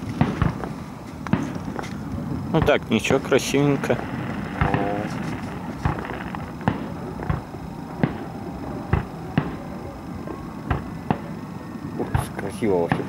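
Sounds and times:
distant fireworks thumps: 0.0 - 13.0.

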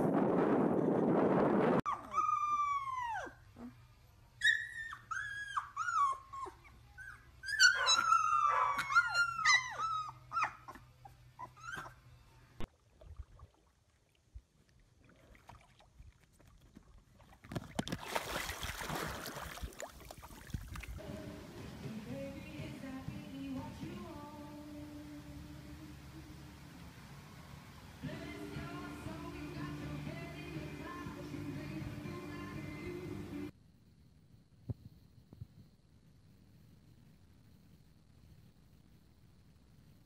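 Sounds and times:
puppies howling and whimpering: 1.9 - 3.8, 4.4 - 12.0.

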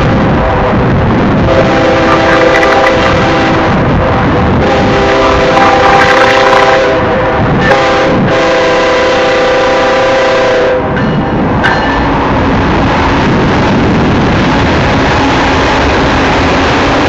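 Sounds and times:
loud steady rushing noise: 0.0 - 17.0
locomotive air horn chord: 1.5 - 3.9, 4.6 - 11.0.

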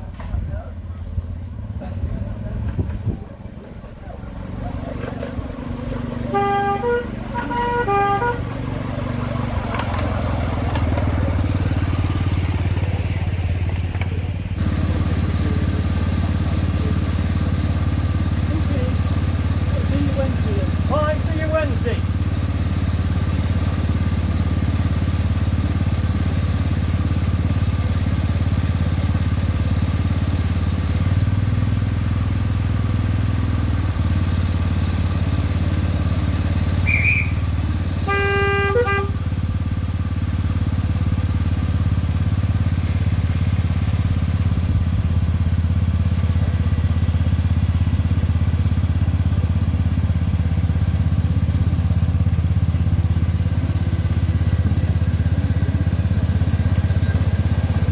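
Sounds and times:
miniature locomotive engine drone: 0.0 - 57.9
train horn blast: 6.3 - 8.6, 38.0 - 39.2.

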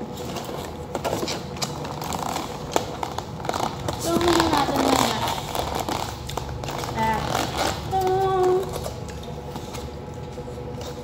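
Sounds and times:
plastic container crackling: 0.4 - 8.9.

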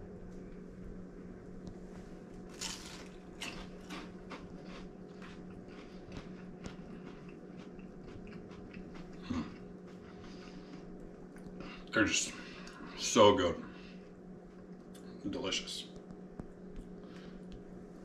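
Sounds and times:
low room hum: 0.0 - 18.0
chewing crunches: 2.3 - 11.9
bite into crispy spring roll: 2.5 - 4.1.

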